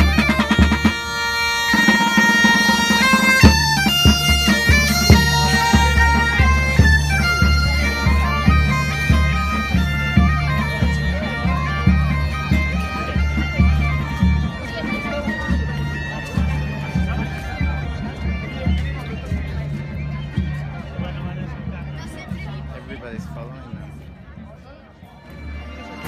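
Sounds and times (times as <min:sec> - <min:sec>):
marching snare drum: 0:00.0 - 0:14.6
bagpipes playing folk melody: 0:00.0 - 0:26.0
bass drum beating: 0:02.7 - 0:12.6.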